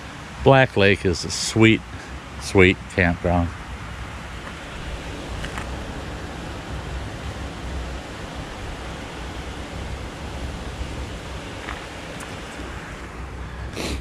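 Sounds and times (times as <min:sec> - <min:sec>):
wind buffeting microphone: 0:03.5 - 0:14.0.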